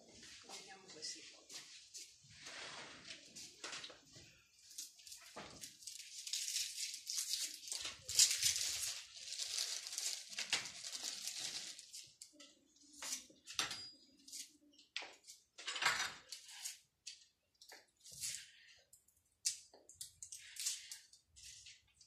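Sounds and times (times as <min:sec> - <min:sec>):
plastic bag rustling: 0:04.8 - 0:12.2.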